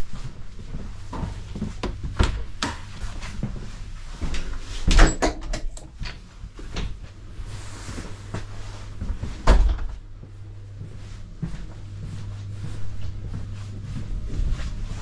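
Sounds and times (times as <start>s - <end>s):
steady low hum: 0.0s - 15.0s
heavy door thump: 9.4s - 10.0s.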